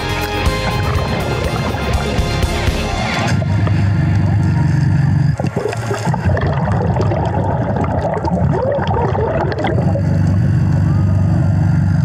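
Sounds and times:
low choppy rumble: 0:00.0 - 0:12.0
underwater bubbling and gurgling: 0:00.4 - 0:12.0.

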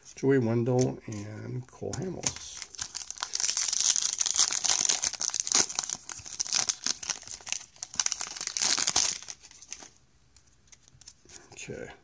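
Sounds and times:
plastic wrapper crinkling: 0:01.9 - 0:10.0.

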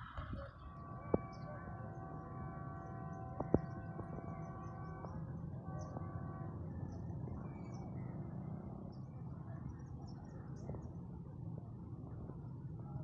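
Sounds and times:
distant train horn: 0:00.6 - 0:06.6.

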